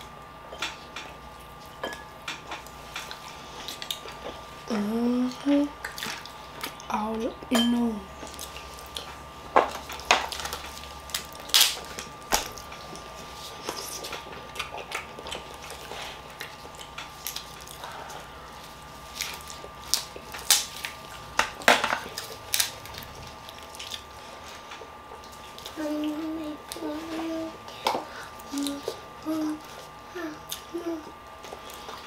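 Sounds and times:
crab shells cracking: 9.8s - 12.8s, 19.1s - 24.1s.

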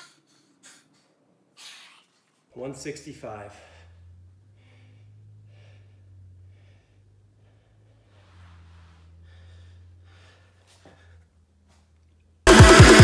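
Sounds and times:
man breathing hard: 0.0s - 2.1s, 3.5s - 11.4s.

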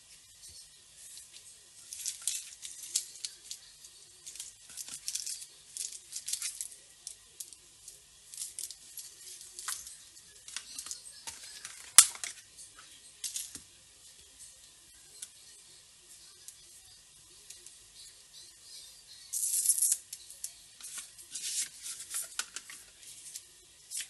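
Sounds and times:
plastic bags crinkling: 1.8s - 6.7s.

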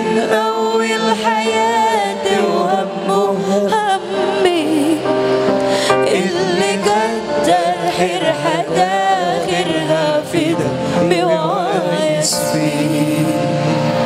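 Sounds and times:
band playing sustained chords: 0.0s - 14.0s
person singing ornamented melody: 5.9s - 14.0s.

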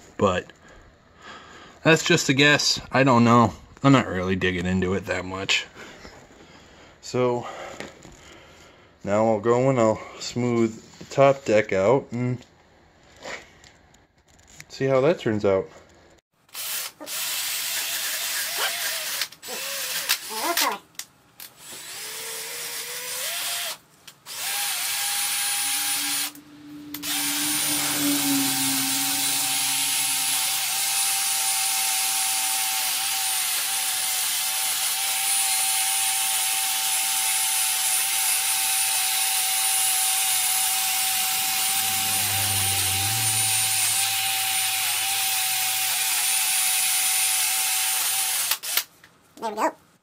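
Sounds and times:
rotary tool grinding metal: 21.6s - 48.9s.

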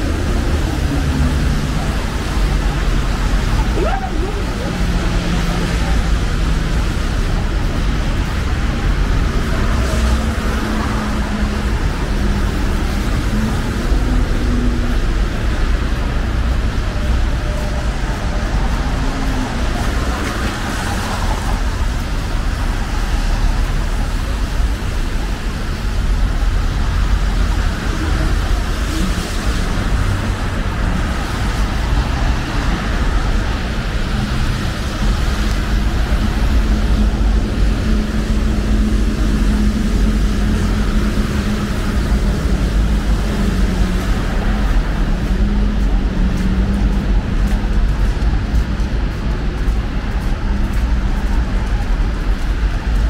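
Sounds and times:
cars passing: 0.0s - 53.0s.

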